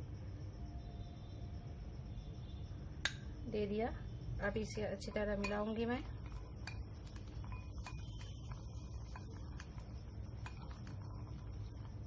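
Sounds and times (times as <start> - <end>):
steady low hum: 0.0 - 12.0
spoon scraping nuts in bowl: 4.7 - 12.0.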